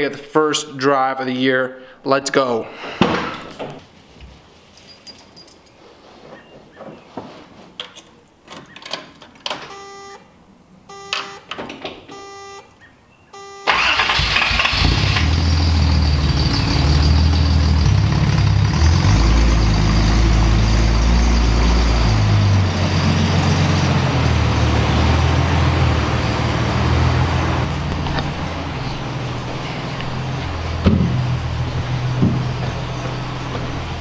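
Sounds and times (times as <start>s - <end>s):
short electronic beeps: 9.7s - 10.2s, 10.9s - 11.5s, 12.1s - 12.7s, 13.3s - 13.7s
car engine starting and idling: 13.6s - 34.0s.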